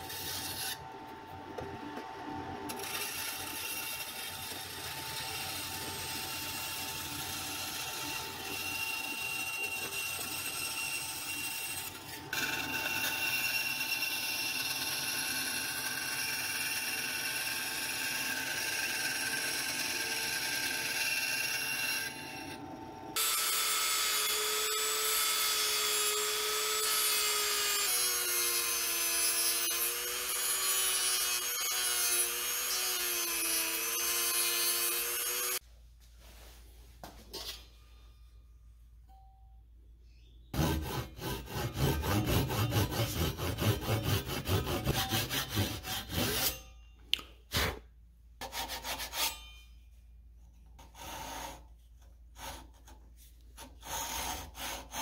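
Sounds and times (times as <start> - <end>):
band saw cutting plastic sheet: 40.6 - 46.7.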